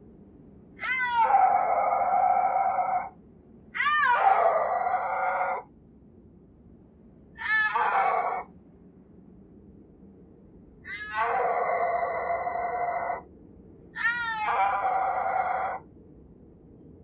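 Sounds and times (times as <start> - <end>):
snow leopard yowling: 0.8 - 3.2, 3.8 - 5.7, 7.4 - 8.5, 10.9 - 13.2, 14.0 - 15.8.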